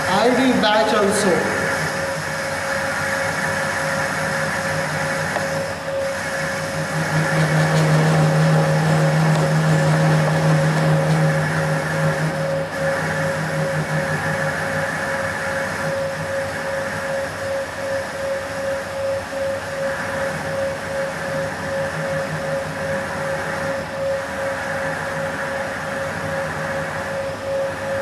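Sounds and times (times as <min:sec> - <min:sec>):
motor and gearbox hum: 0:00.0 - 0:28.0
pulsing whine: 0:00.0 - 0:28.0
lathe tool scraping metal: 0:06.1 - 0:15.0.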